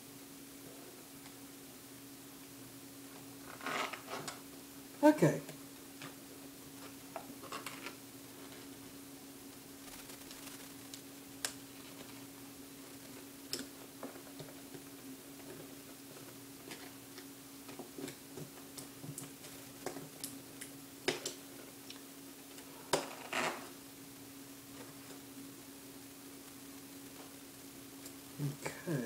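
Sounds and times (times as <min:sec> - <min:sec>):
steady recording hum: 0:00.0 - 0:29.0.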